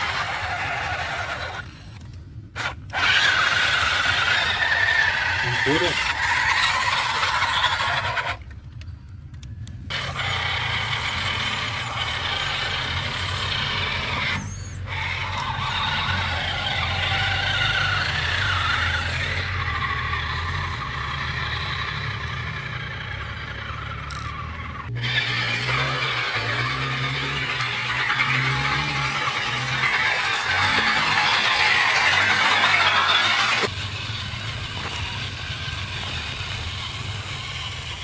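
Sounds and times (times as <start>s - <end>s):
electric motor whining: 0.0s - 8.6s, 9.9s - 38.0s
driving through muddy water: 22.8s - 38.0s.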